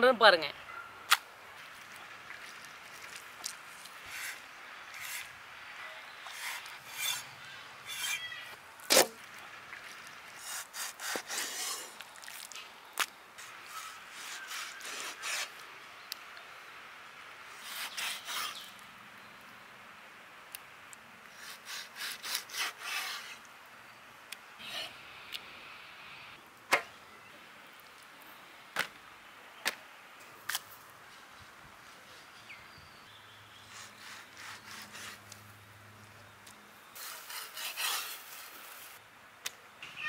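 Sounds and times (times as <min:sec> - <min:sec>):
knife scraping through fish: 0:37.0 - 0:38.4.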